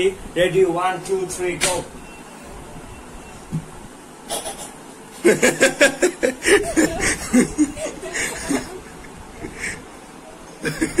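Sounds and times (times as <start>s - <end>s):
girl laughing: 5.2s - 10.0s, 10.6s - 11.0s.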